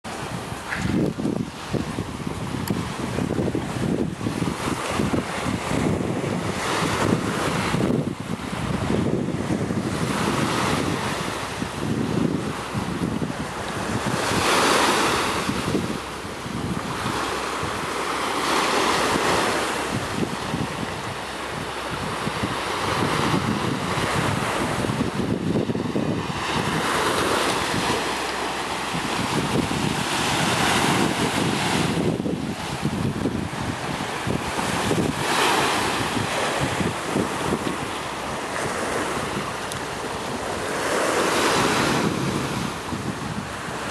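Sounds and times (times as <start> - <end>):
waves washing onto sand: 0.0 - 43.9
wind buffeting microphone: 0.0 - 43.9.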